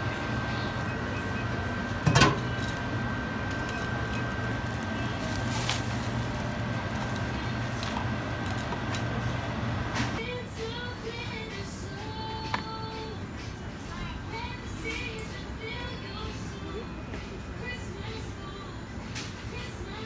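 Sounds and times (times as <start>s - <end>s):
display fridge hum: 0.0s - 20.0s.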